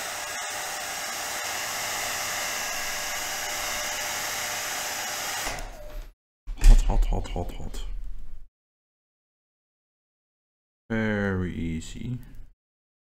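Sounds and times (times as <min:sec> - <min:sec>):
hot-air blower hissing: 0:00.0 - 0:05.8.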